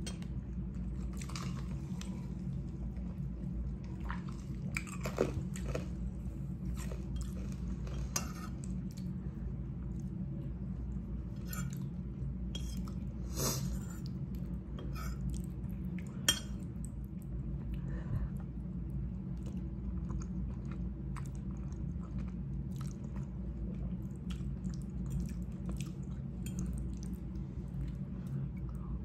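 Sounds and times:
chewing: 3.8s - 9.1s, 19.3s - 28.8s.

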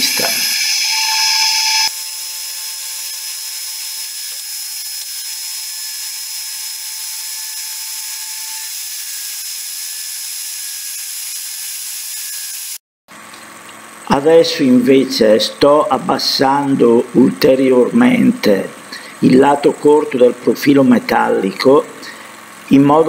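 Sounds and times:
machine whining tones: 0.0s - 8.8s
milling machine cutting metal: 0.0s - 12.8s.

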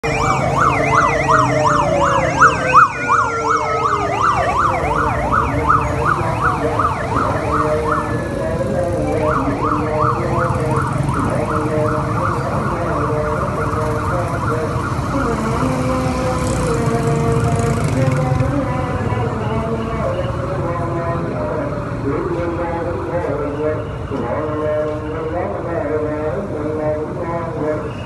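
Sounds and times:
siren tone sliding downward: 0.0s - 16.8s
police siren yelping: 0.0s - 26.5s
motorcycle engines passing: 0.0s - 28.0s.

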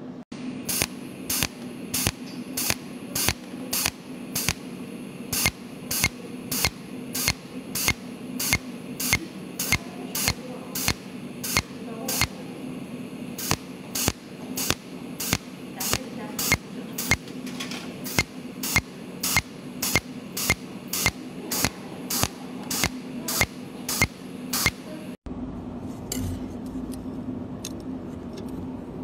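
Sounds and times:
steady low hum: 0.0s - 29.0s
welding torch snapping: 0.6s - 12.5s, 13.4s - 17.4s, 18.0s - 25.0s.

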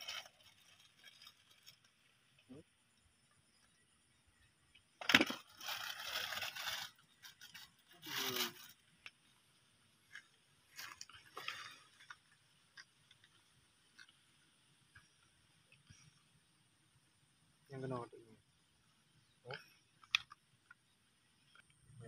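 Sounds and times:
rough scraping and crunching: 0.0s - 2.4s, 5.0s - 8.9s, 10.0s - 14.2s.

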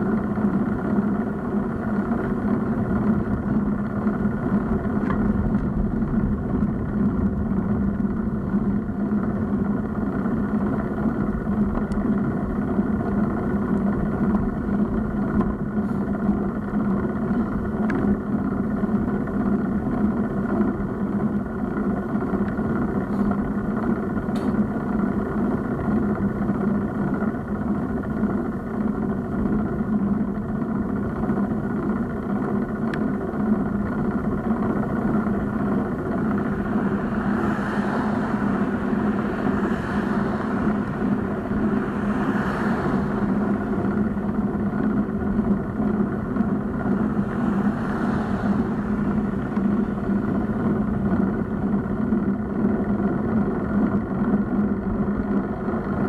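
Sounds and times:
bicycle road noise: 0.0s - 56.0s
cars passing: 34.4s - 53.9s.

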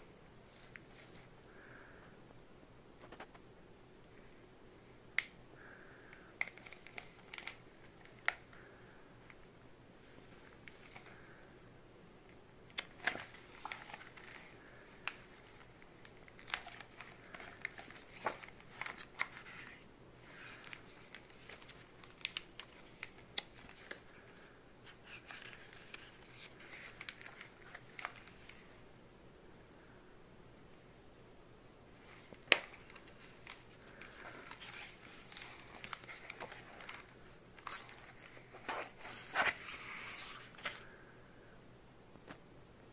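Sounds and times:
plastic sleeves crinkling: 5.1s - 11.5s, 12.6s - 28.8s, 32.0s - 41.0s.

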